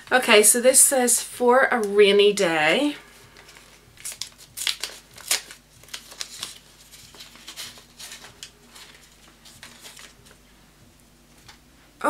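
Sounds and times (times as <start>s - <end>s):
packaging rustling and crinkling: 3.2s - 10.5s.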